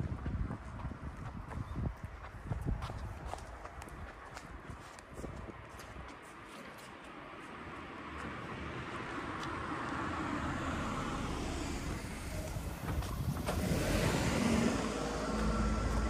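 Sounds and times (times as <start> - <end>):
car driving past: 9.7 - 16.0.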